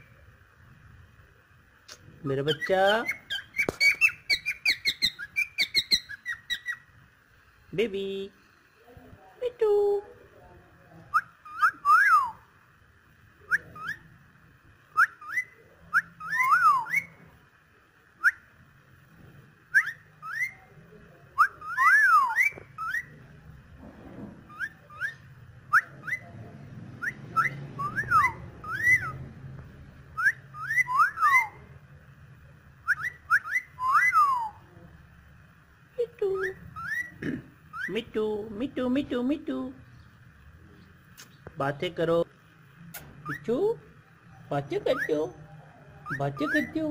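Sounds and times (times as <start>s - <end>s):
cockatiel whistling: 2.5s - 6.8s, 11.1s - 12.4s, 13.5s - 14.1s, 14.9s - 17.2s, 19.7s - 20.6s, 21.4s - 23.2s, 24.5s - 26.3s, 27.0s - 29.2s, 30.2s - 31.6s, 32.8s - 34.6s, 36.4s - 38.0s, 46.0s - 46.9s.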